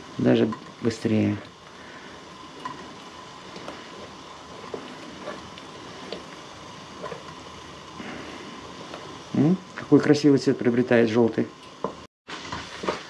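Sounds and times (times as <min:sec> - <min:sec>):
steady hiss: 0:00.0 - 0:13.0
spoon stirring in steel bowl: 0:02.4 - 0:07.6.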